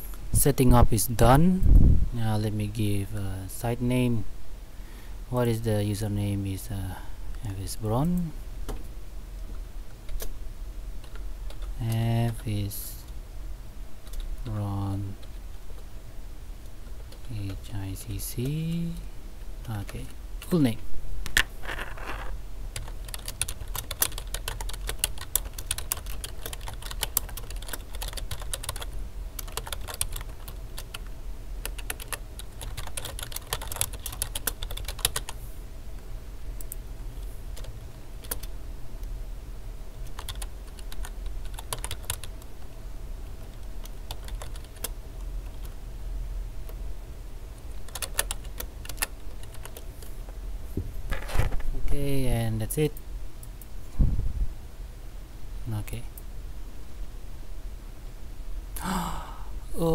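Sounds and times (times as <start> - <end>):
steady low hum: 0.0 - 59.9
typing on computer keyboard: 22.8 - 35.4, 37.6 - 38.5, 40.1 - 42.4, 43.5 - 45.8, 47.7 - 49.9.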